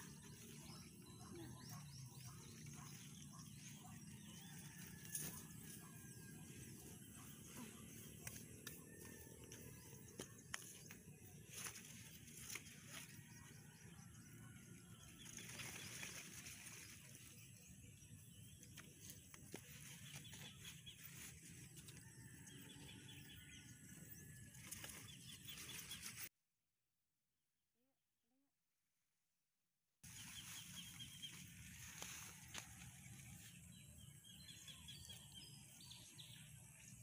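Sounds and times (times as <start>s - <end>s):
leaves rustling: 10.5s - 13.4s, 15.0s - 17.6s, 30.1s - 33.6s.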